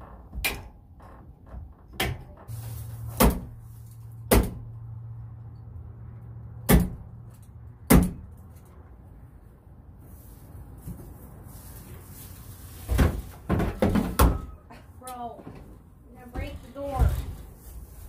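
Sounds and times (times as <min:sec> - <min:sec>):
hammer knocking on wooden frame: 0:04.3 - 0:04.6.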